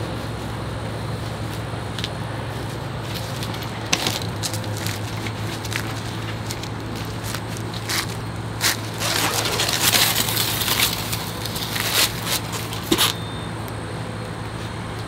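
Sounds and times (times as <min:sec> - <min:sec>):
packing wrap crinkling: 0:04.1 - 0:13.2.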